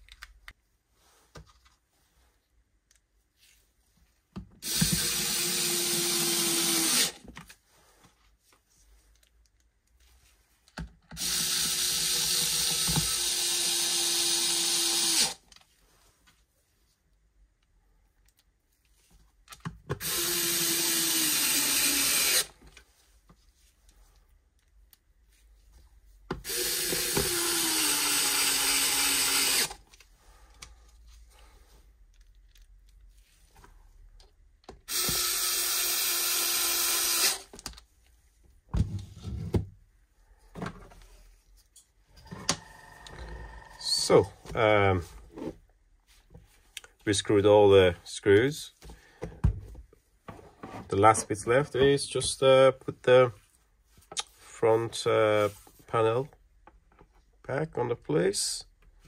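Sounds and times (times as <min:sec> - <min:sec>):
electric screwdriver whine: 0:26.5 - 0:29.8, 0:34.9 - 0:37.5, 0:42.2 - 0:44.0.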